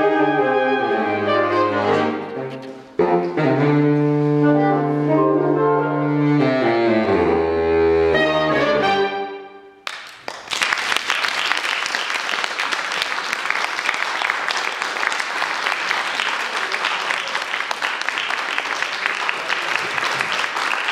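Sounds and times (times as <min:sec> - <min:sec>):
saxophone quartet chord: 0:00.0 - 0:09.6
audience applause: 0:09.8 - 0:20.9.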